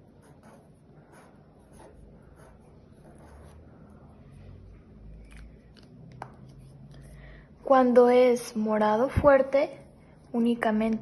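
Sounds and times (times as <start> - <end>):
marker writing on paper: 0.0 - 3.9.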